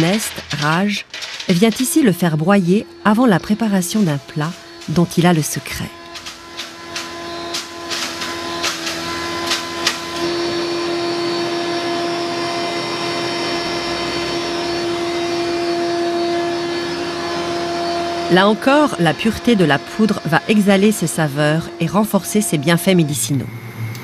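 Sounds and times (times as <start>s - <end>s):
spice mill grinding: 0.0s - 11.0s.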